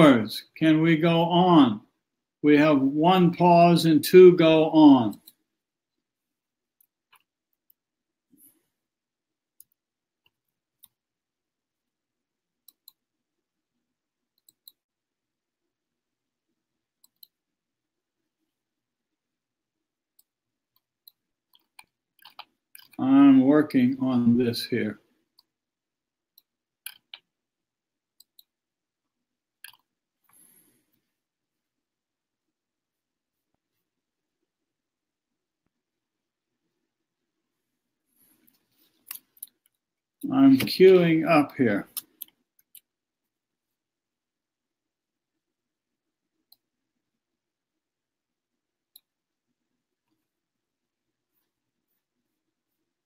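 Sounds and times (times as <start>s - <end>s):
computer mouse clicks: 12.6s - 13.0s, 14.4s - 14.9s, 17.0s - 17.4s, 20.2s - 23.0s, 26.4s - 27.3s, 28.2s - 28.6s, 29.6s - 30.4s.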